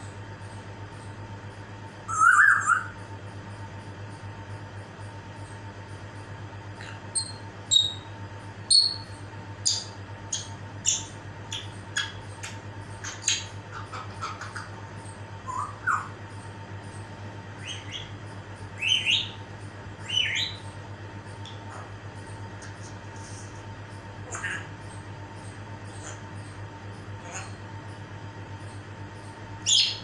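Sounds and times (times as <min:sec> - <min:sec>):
parrot whistles chirps and clicks: 0:09.7 - 0:14.7, 0:21.4 - 0:21.6.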